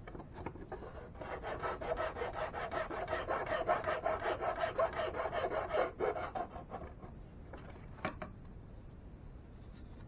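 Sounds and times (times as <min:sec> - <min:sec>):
hand file rasping wood: 0:00.8 - 0:07.0.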